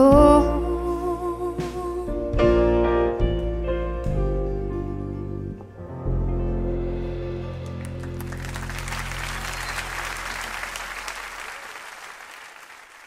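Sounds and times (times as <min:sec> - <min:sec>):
audience applause: 0:07.8 - 0:13.0.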